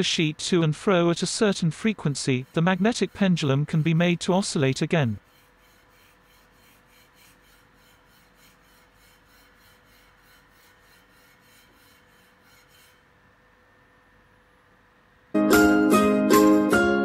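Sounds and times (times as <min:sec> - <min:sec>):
metal plate rubbing on tabletop: 0:01.2 - 0:13.1.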